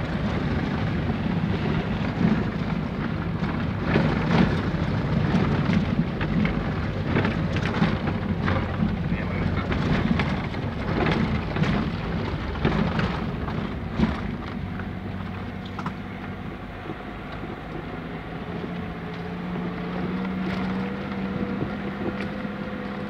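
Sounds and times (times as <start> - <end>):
car engine and road noise: 0.0 - 23.0
knocks and rattles over bumps: 0.0 - 23.0.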